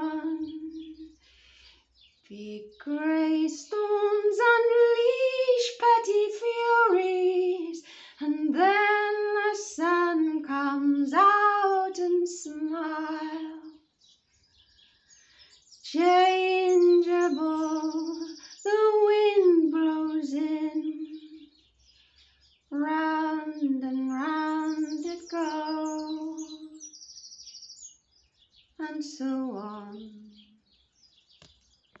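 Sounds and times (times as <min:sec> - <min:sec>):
woman singing unaccompanied: 0:00.0 - 0:01.2, 0:02.3 - 0:13.8, 0:15.8 - 0:21.7, 0:22.7 - 0:26.9, 0:28.8 - 0:30.6.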